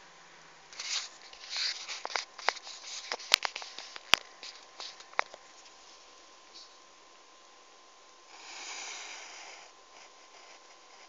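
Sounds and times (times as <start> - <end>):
plastic brushing on paper: 0.8 - 6.8.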